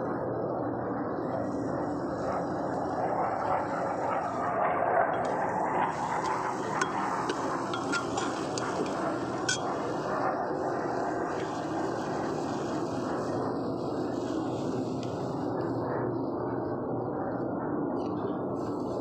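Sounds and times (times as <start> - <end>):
food frying in pot: 5.2 - 9.7
ladle clinking on pot: 6.0 - 9.7.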